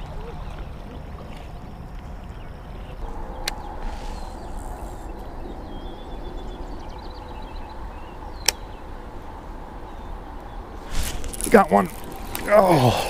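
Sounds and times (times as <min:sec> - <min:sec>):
outdoor background: 0:00.0 - 0:13.0
fishing reel clicking: 0:03.9 - 0:05.2.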